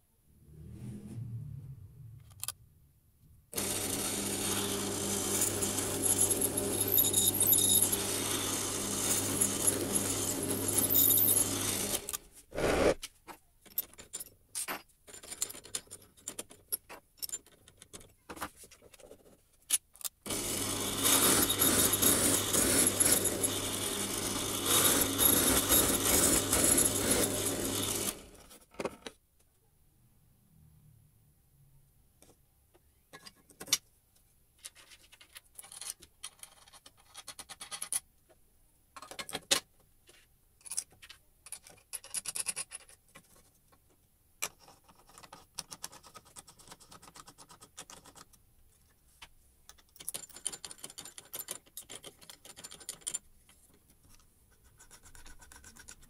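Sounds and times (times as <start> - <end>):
drill motor hum: 3.6 - 12.9, 20.3 - 28.3
drill press boring into wood: 3.6 - 13.0, 20.3 - 28.4.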